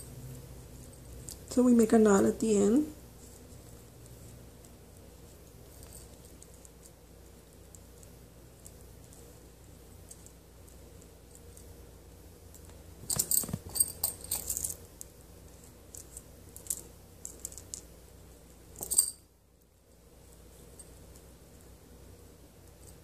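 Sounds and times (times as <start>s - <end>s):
beads and charms clinking: 13.1s - 14.8s.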